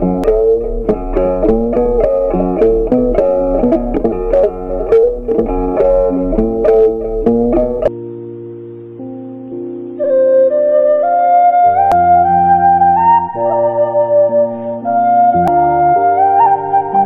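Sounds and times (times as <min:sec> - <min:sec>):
plucked guitar melody: 0:00.0 - 0:10.5.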